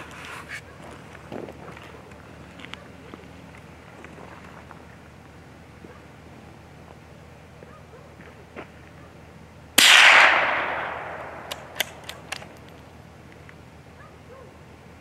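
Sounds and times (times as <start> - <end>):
rifle shot echoing: 9.8 - 12.5
rifle action metallic clicks: 9.8 - 12.8.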